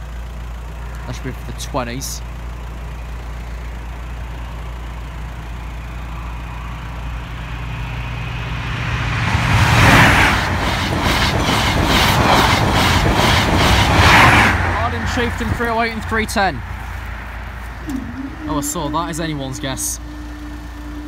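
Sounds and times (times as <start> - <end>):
train passing at speed: 5.2 - 21.0
wheels clattering over rail joints: 9.8 - 16.9.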